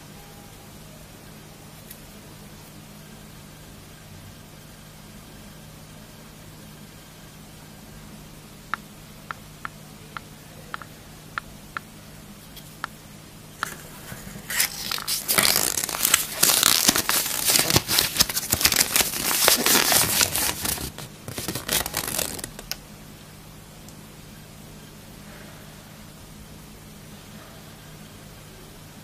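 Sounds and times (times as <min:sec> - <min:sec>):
foil wrapper crinkling and tearing: 0:14.5 - 0:22.8.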